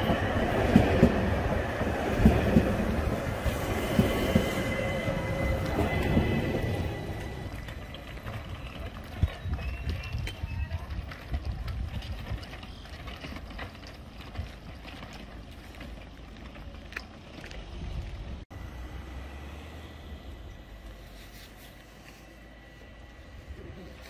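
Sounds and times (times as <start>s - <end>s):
electric train rumbling: 0.0s - 24.0s.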